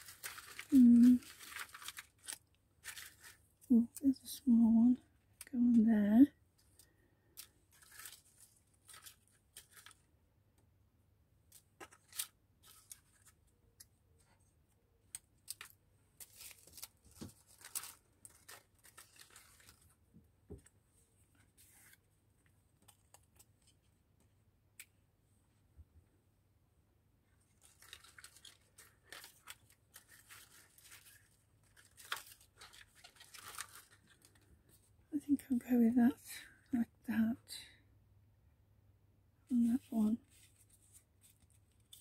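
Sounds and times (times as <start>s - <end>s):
paper cutouts rustling: 0.0s - 4.2s, 6.6s - 10.0s, 11.5s - 22.1s, 27.3s - 34.9s.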